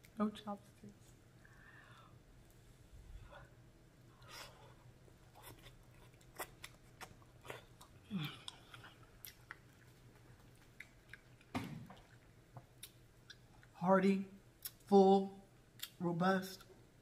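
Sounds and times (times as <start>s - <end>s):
chewing and mouth sounds: 4.2s - 13.8s, 15.7s - 16.0s.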